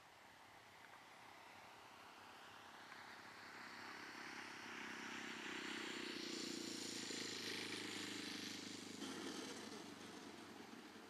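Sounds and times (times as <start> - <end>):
model plane engine running: 4.7 - 11.0.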